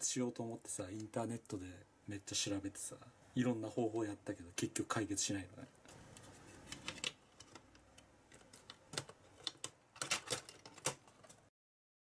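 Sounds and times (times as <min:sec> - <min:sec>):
plastic cover strip clicking: 0:06.2 - 0:11.4.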